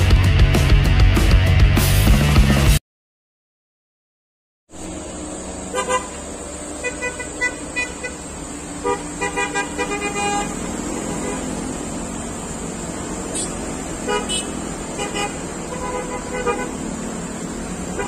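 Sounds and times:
motorcycles riding past: 4.8 - 18.0
short horn toots: 13.3 - 16.8.

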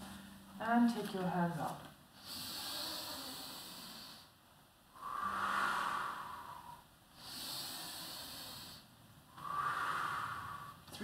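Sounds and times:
woman breathing: 2.1 - 11.0.

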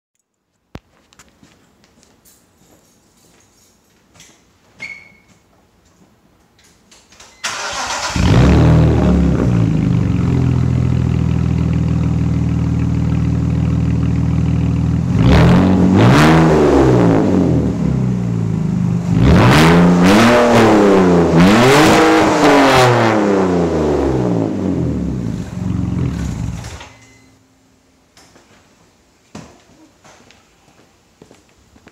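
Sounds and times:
engine revving: 7.5 - 10.8, 15.0 - 18.2, 19.0 - 26.8
car exhaust idling: 8.1 - 15.8, 24.3 - 26.6.

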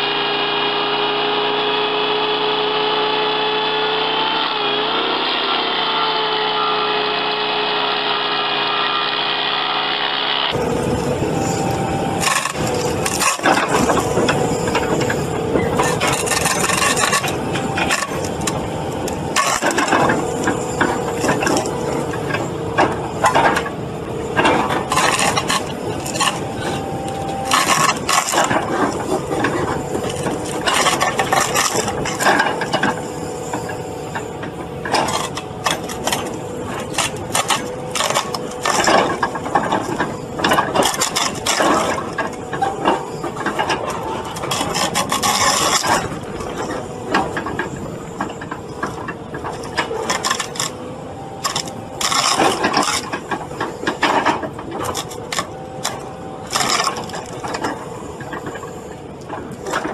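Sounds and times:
excavator engine running: 0.0 - 59.9
wood cracking and splintering: 10.6 - 23.8, 24.4 - 33.6, 34.8 - 58.7.

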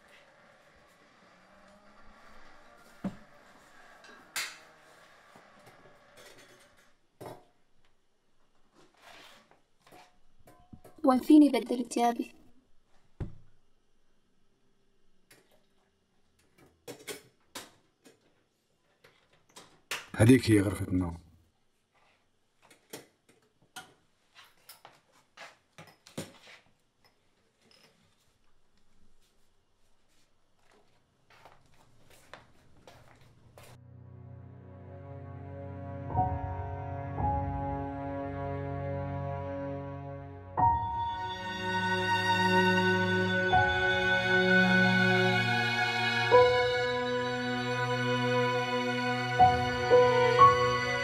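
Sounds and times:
faint room noise: 0.0 - 33.8.

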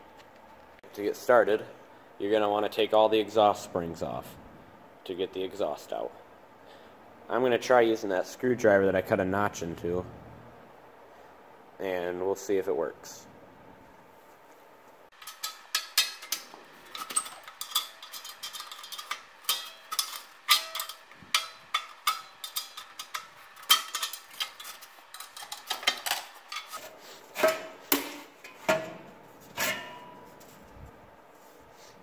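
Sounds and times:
metal springs clinking and snapping: 15.1 - 28.9.

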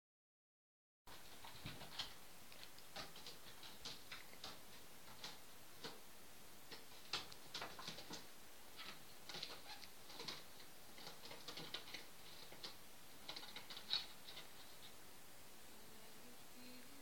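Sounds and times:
cat claws scratching: 1.1 - 6.0, 6.7 - 15.0.

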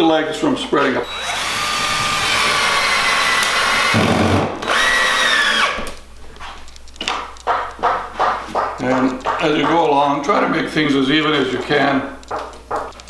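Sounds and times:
cordless drill whining: 1.0 - 6.0.

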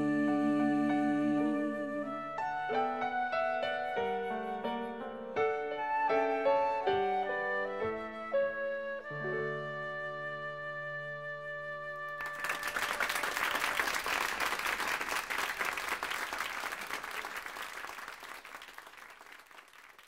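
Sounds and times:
audience applause: 12.1 - 20.0.

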